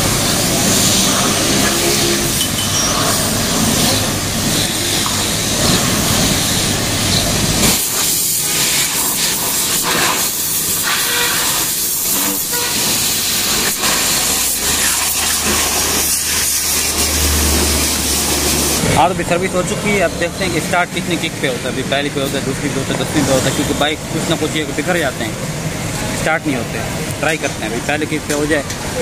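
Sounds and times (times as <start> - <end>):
pressure washer spray hiss: 0.0 - 19.1.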